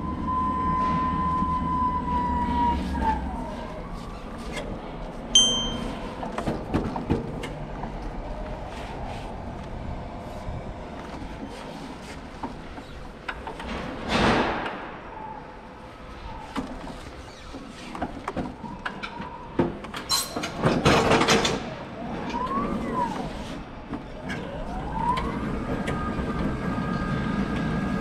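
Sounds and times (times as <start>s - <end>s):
short high beep: 5.4s - 6.0s.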